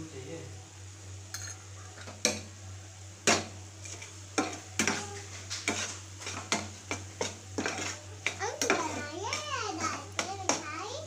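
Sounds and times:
low steady hum: 0.0 - 11.0
metal spoon scraping wok: 3.8 - 10.6.

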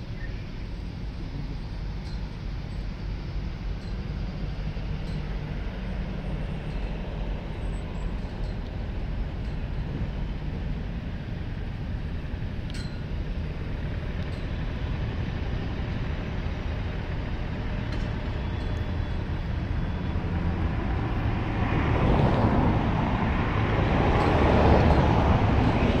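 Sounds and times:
traffic rumble: 0.0 - 26.0
vehicle passing: 13.7 - 26.0.

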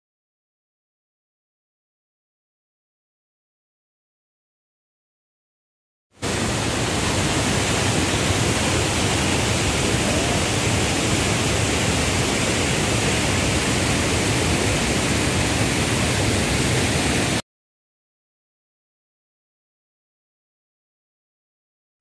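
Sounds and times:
waterfall rushing: 6.2 - 17.4.

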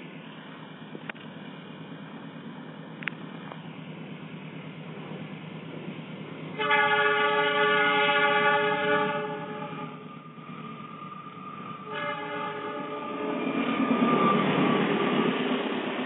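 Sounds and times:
train rumbling: 0.0 - 16.0
locomotive air horn blasts: 6.6 - 10.0, 11.7 - 13.4.

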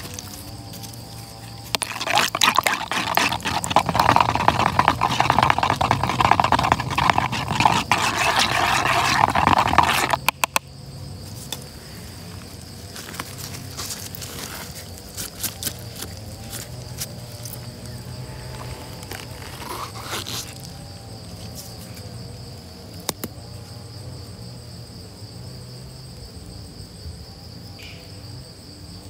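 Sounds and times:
high insect buzz: 0.0 - 29.0
liquid swishing: 1.7 - 10.4
stick clicking against cup: 1.7 - 10.6.

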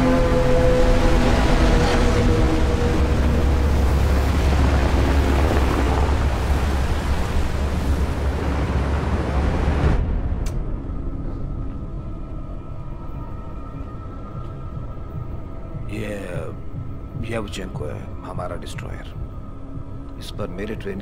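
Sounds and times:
rushing water: 0.0 - 10.2
low hum: 0.0 - 21.0
wind: 0.0 - 21.0.

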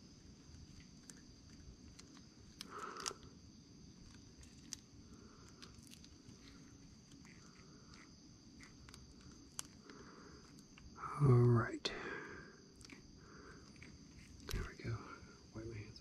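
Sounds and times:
gloved hands clicking and rustling: 0.5 - 3.3.

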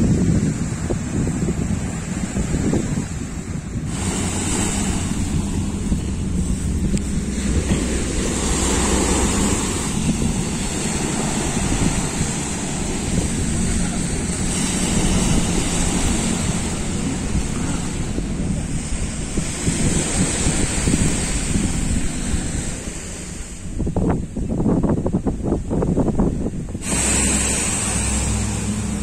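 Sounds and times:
small waves washing on shore: 0.0 - 29.0
wind buffeting microphone: 0.0 - 29.0.

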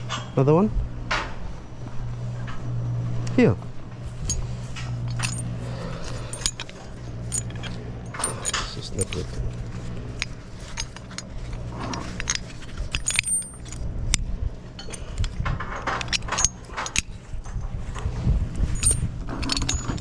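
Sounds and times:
steady low rumble: 0.0 - 20.0
metal couplers clinking and rattling: 4.0 - 20.0.

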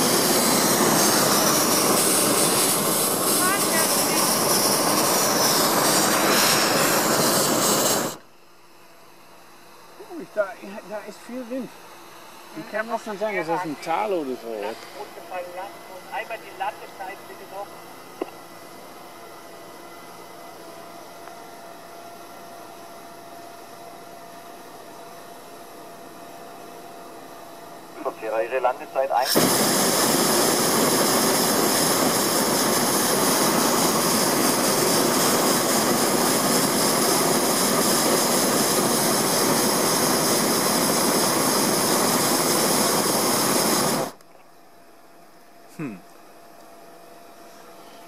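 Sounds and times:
propane burner firing: 0.0 - 8.3, 9.9 - 17.5, 28.1 - 44.2.

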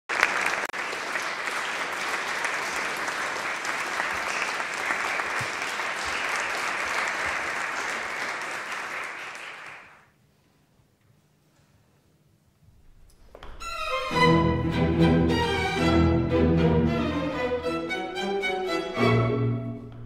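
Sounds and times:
audience applauding: 0.1 - 10.1.

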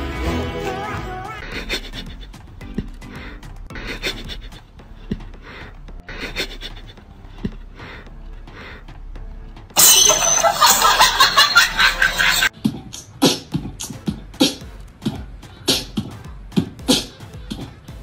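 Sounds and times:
percussive beat of thumps and hits: 12.5 - 18.0.

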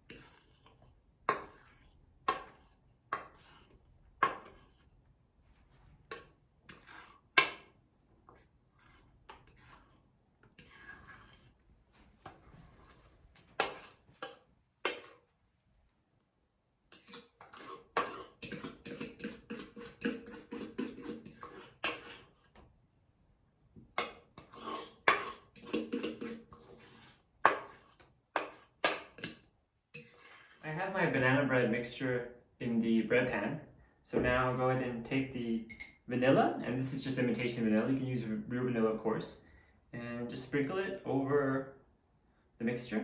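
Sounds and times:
utensil scraping metal bowl: 0.0 - 5.0, 6.0 - 15.3, 16.9 - 22.7, 23.7 - 30.8.

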